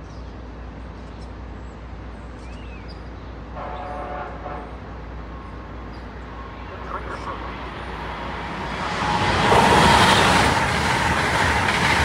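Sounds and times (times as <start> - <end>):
diesel locomotive idling: 3.4 - 12.0.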